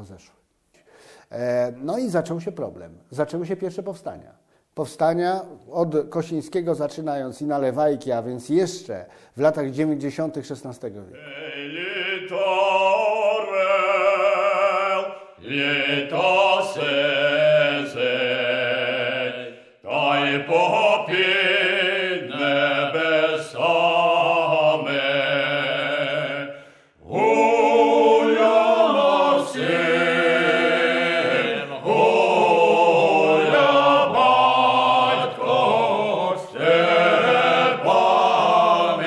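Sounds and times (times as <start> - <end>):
choral singing: 11.2 - 39.0.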